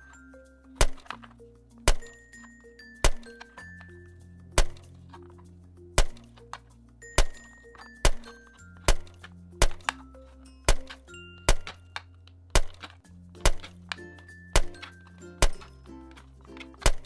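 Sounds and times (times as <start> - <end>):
toy knife chopping on plastic board: 0.8 - 1.2, 3.0 - 3.4, 8.0 - 10.0, 10.7 - 15.7, 16.7 - 17.0.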